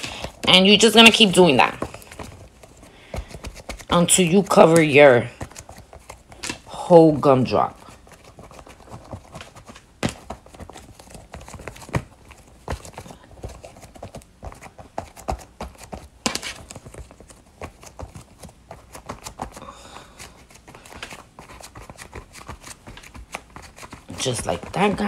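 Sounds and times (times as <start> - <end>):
hands patting and pressing clay: 0.0 - 25.0.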